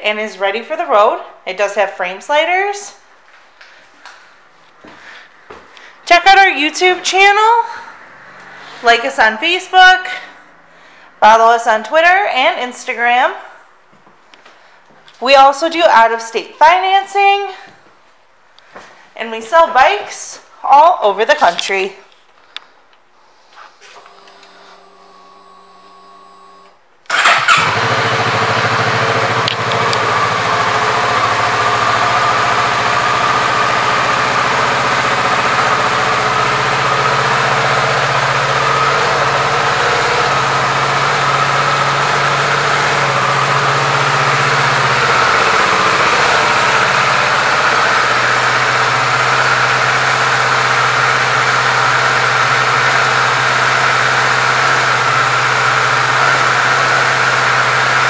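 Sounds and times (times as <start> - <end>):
motorcycle engine starting and idling: 23.8 - 58.0.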